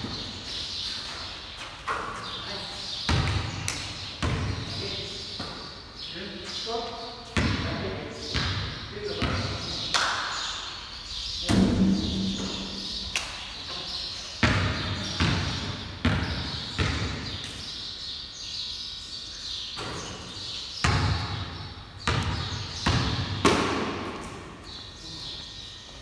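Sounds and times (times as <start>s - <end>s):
basketball bouncing on concrete: 3.1s - 5.6s, 7.4s - 9.6s, 14.4s - 17.4s, 20.8s - 24.3s.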